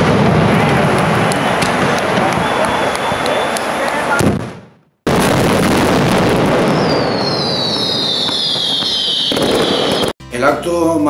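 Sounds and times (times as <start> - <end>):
firecracker barrage crackling: 0.0 - 10.2
high falling whistle: 1.3 - 3.7, 6.6 - 10.1.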